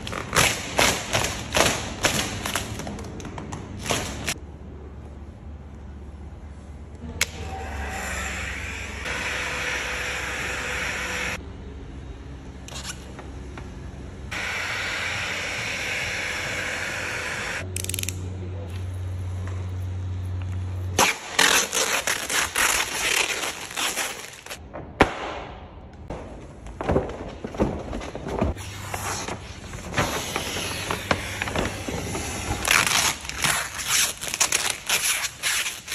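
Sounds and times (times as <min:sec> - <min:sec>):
vinyl film crackling under squeegee: 0:21.0 - 0:24.6, 0:31.4 - 0:35.9.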